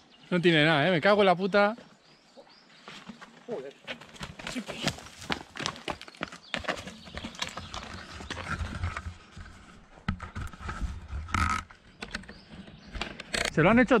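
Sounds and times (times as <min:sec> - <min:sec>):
footsteps on gravel: 0:02.8 - 0:09.7.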